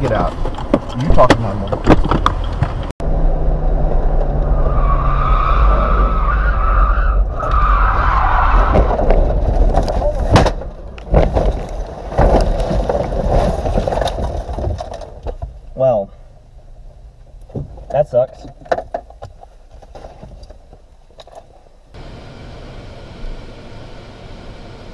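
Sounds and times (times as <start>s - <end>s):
engine and road rumble: 0.0s - 24.9s
tyres squealing in a skid: 4.4s - 9.1s
vehicle crashing knocks and bangs: 8.5s - 15.5s.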